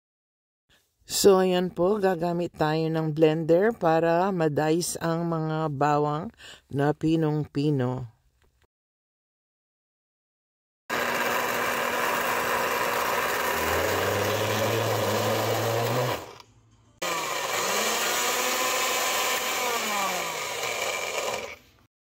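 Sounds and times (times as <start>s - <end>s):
blender chopping garlic: 10.9s - 21.9s.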